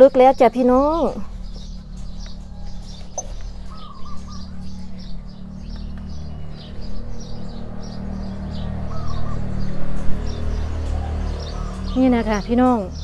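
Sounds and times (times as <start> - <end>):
small birds chirping: 0.0 - 13.0
steady low hum: 0.0 - 13.0.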